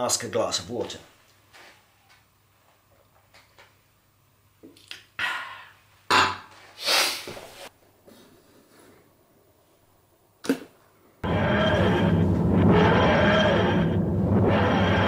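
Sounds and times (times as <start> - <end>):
man exhaling: 5.2 - 5.8
rustling rush of noise: 11.2 - 15.0.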